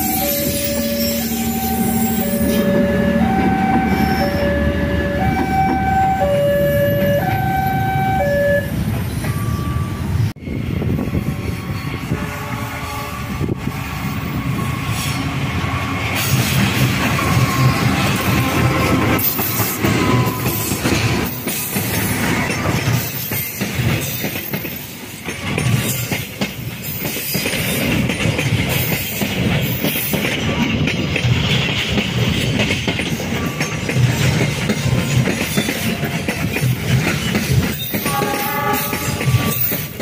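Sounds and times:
steady train rumble: 0.0 - 40.0
train wheels clattering over rail joints: 16.0 - 40.0.

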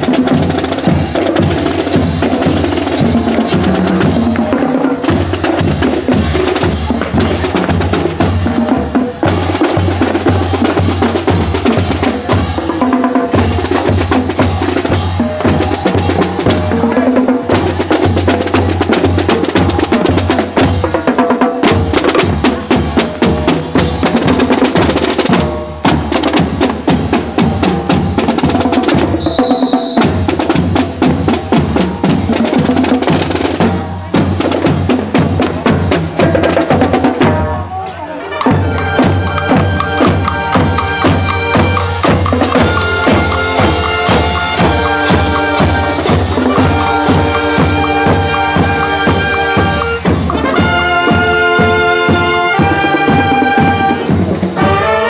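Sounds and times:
drum and percussion beat: 0.0 - 37.7, 38.3 - 55.0
brass playing: 21.9 - 30.6, 37.0 - 55.0.

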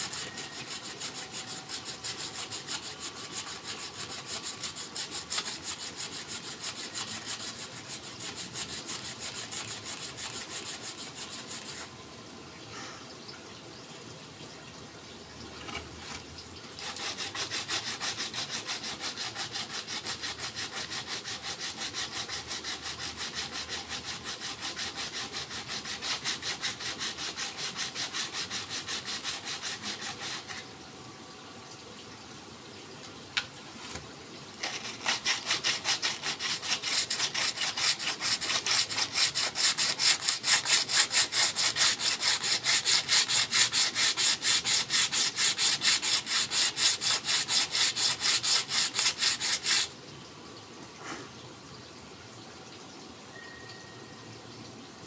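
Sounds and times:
sandpaper rubbing on wood: 0.0 - 11.9, 16.8 - 30.6, 34.6 - 49.9.

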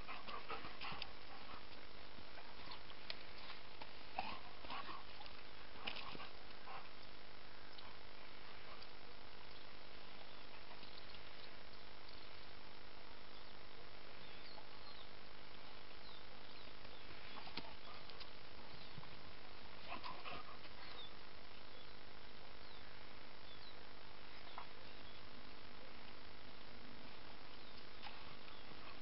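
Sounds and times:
steady outdoor hiss: 0.0 - 29.0
faint bird chirps: 13.2 - 19.2, 19.9 - 25.4, 27.1 - 29.0.

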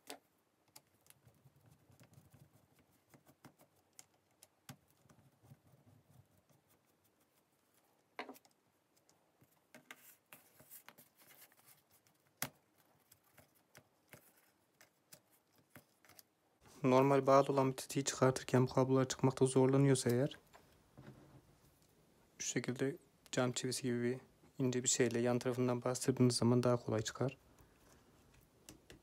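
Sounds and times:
faint clicks and rustles of handling: 0.0 - 22.4, 24.4 - 29.0.

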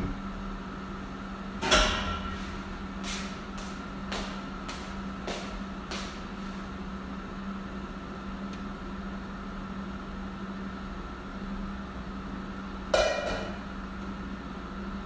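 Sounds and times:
kitchen fan humming: 0.0 - 15.0.

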